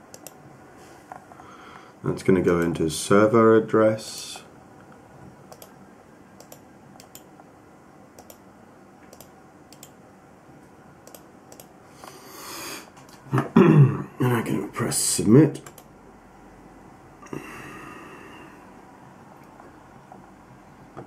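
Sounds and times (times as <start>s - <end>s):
computer mouse clicking: 0.1s - 0.4s, 4.8s - 5.8s, 6.4s - 7.4s, 8.2s - 8.4s, 9.0s - 10.0s, 11.0s - 11.7s, 15.6s - 15.9s.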